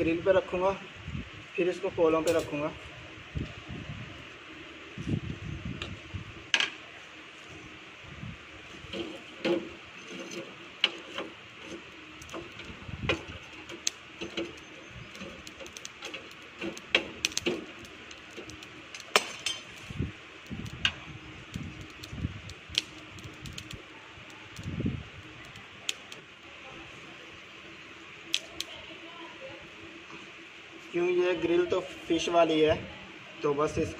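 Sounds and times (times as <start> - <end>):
wire grill basket handled: 8.7 - 20.0
tongs clinking in charcoal: 8.7 - 26.2, 28.3 - 28.8.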